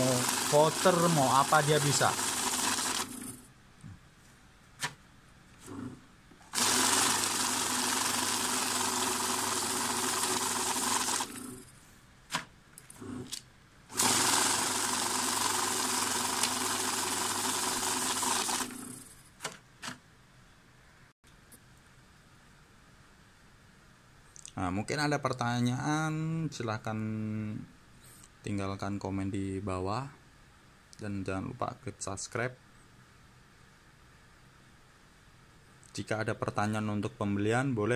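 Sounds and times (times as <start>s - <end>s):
banknote counter whirring: 0.0s - 3.4s, 6.5s - 11.7s, 13.0s - 19.6s.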